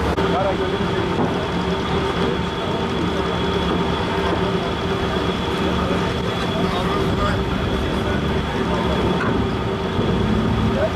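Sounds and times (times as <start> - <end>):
ship engines droning: 0.0 - 10.9.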